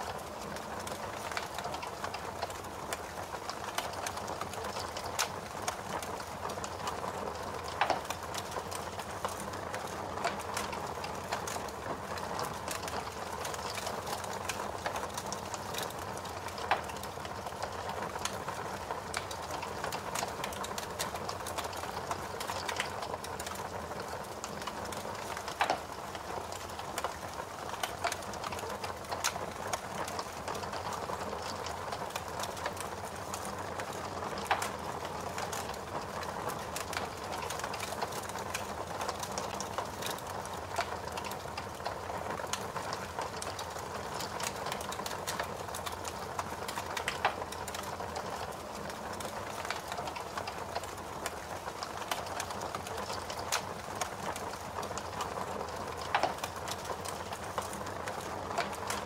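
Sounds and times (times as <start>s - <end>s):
fire crackling and popping: 0.0s - 59.0s.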